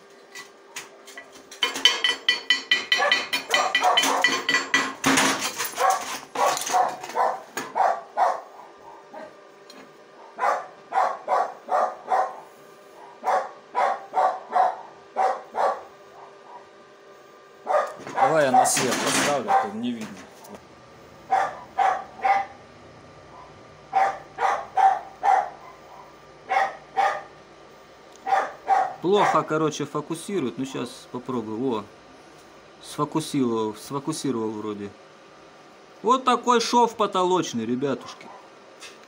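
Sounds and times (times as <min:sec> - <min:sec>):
dog barking: 0:02.9 - 0:04.3, 0:05.8 - 0:09.4, 0:10.2 - 0:16.7, 0:17.6 - 0:19.8, 0:21.3 - 0:22.6, 0:23.3 - 0:27.4, 0:28.2 - 0:29.5, 0:38.0 - 0:38.5.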